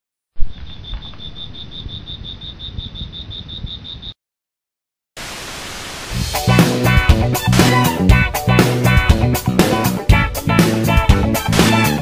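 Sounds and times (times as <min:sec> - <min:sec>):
insect chirping: 0:00.4 - 0:04.2.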